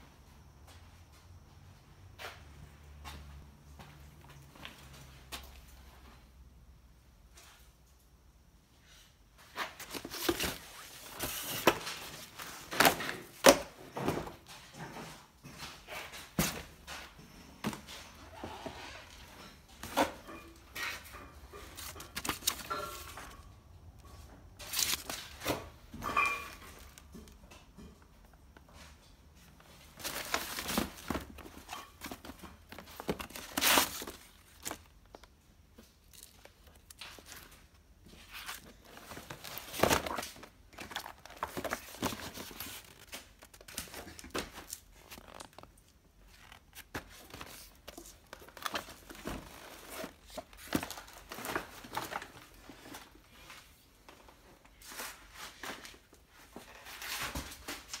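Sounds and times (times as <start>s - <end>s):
papers and plastic rustling: 9.4s - 28.0s, 28.6s - 58.0s.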